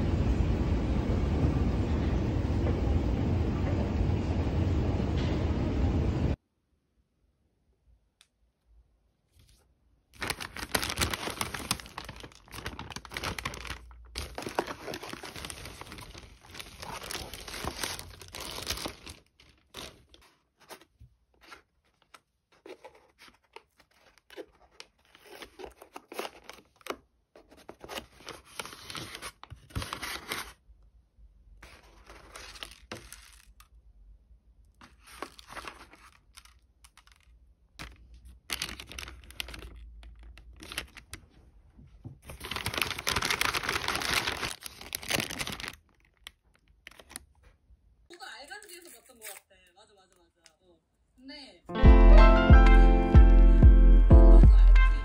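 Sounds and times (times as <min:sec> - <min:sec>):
bags rustling and crinkling: 0:10.2 - 0:30.6, 0:31.6 - 0:33.7, 0:34.8 - 0:41.2, 0:42.2 - 0:47.4.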